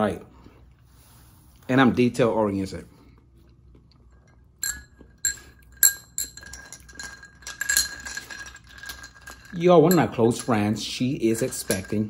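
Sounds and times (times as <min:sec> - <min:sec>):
glass clinking: 0:04.1 - 0:12.0.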